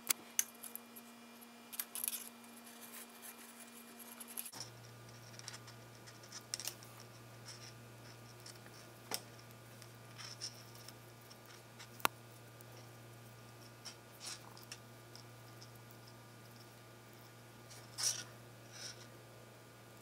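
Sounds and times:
low electrical hum: 0.0s - 20.0s
cord scratching and rubbing: 1.8s - 12.1s, 12.7s - 16.8s, 17.7s - 19.1s.

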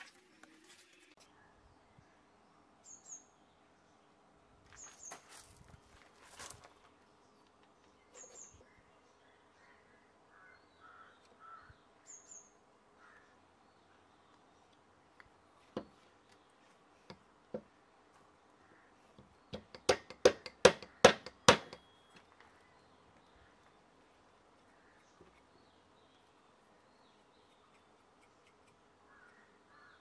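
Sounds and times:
faint high bird chirps: 7.9s - 14.7s, 24.8s - 30.0s
sharp knocks: 19.5s - 21.8s.

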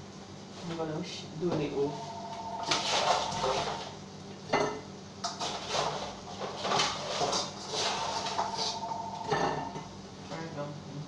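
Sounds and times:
utensil clinking against bowl and plate: 4.5s - 9.9s.

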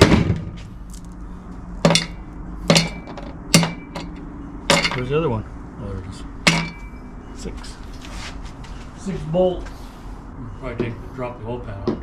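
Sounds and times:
bolts clanking on steel plate: 1.8s - 5.1s, 6.5s - 6.9s.

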